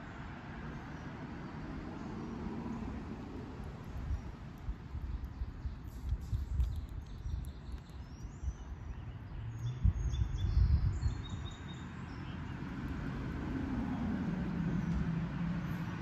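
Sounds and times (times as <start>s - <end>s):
road traffic rushing: 0.0s - 6.2s, 8.7s - 16.0s
bird chirps: 5.2s - 12.6s.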